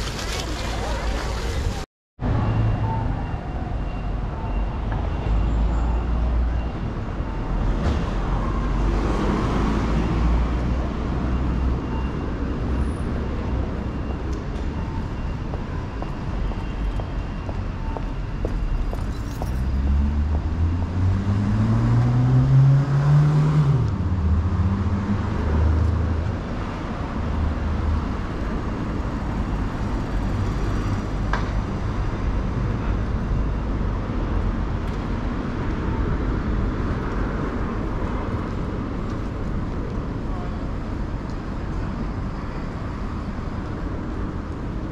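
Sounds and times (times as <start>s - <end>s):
traffic hum: 0.0s - 44.9s
vehicle engine accelerating: 19.6s - 26.1s.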